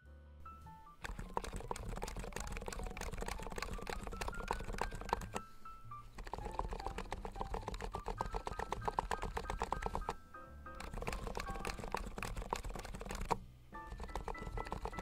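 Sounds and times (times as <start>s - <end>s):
fast keyboard typing: 1.0s - 15.0s.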